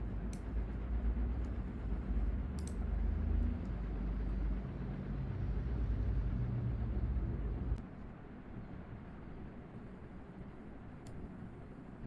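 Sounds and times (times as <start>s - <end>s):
low rumble of background noise: 0.0s - 12.0s
sharp click: 2.6s - 2.8s.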